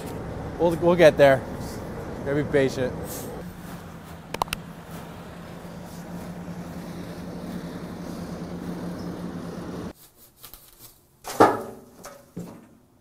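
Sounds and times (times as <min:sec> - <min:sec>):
truck engine running: 0:00.0 - 0:09.9.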